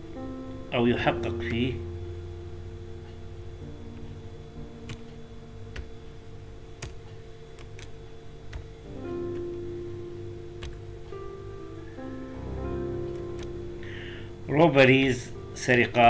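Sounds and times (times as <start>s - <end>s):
soft background music: 0.0s - 16.0s
keyboard and mouse clicks: 4.9s - 5.9s, 6.8s - 8.7s, 10.6s - 10.8s, 13.1s - 13.6s.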